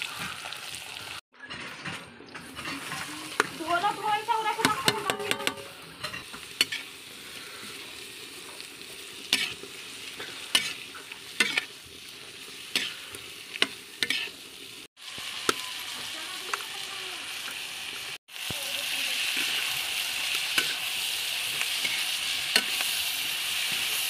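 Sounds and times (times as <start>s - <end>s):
onions sizzling in oil: 0.0s - 1.2s, 2.5s - 24.0s
metal spatula scraping pan: 1.4s - 7.0s, 8.5s - 11.8s, 12.6s - 14.4s.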